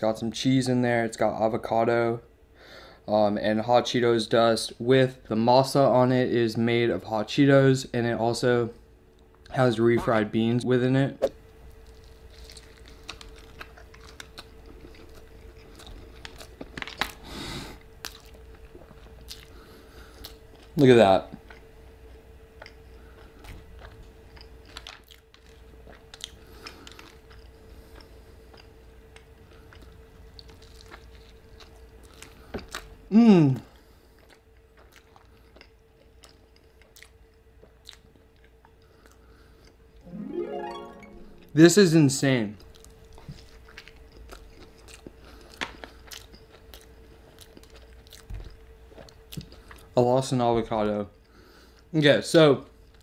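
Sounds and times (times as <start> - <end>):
faint steady hum: 0.0 - 53.0
crunching and chewing: 11.6 - 39.9, 42.6 - 50.0.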